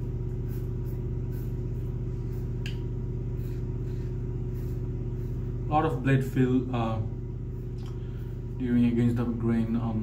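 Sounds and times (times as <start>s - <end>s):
razor cutting stubble: 0.0s - 6.6s
low mechanical hum: 0.0s - 10.0s.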